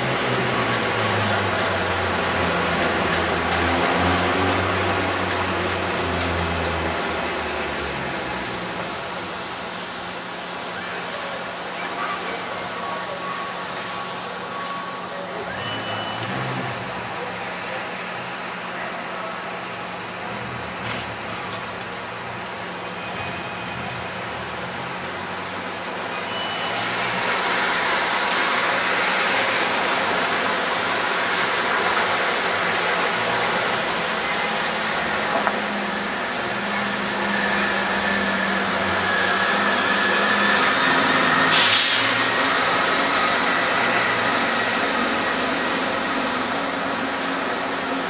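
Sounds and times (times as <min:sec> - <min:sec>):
subway train running: 0:00.0 - 0:48.0
sharp hiss of air: 0:41.4 - 0:42.5.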